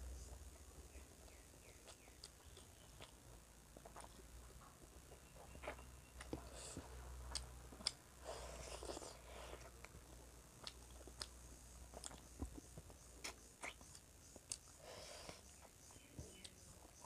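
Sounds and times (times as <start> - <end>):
person chewing food: 0.9 - 17.0
mouth clicks and smacks: 10.6 - 14.8.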